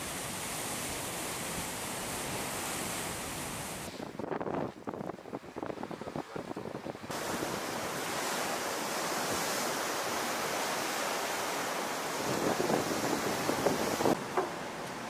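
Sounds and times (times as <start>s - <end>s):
water rushing along hull: 0.0s - 15.0s
wind buffeting microphone: 3.4s - 10.9s, 11.5s - 14.4s.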